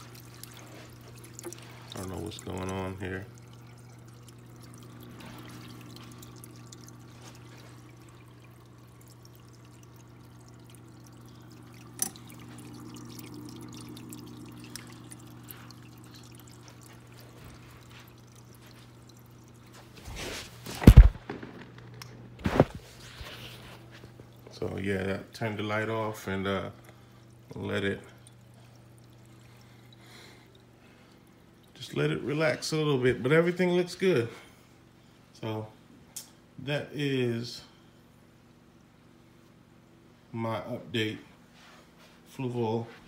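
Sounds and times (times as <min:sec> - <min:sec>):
water trickling and splashing: 0:00.0 - 0:33.9
pump humming: 0:00.0 - 0:34.4.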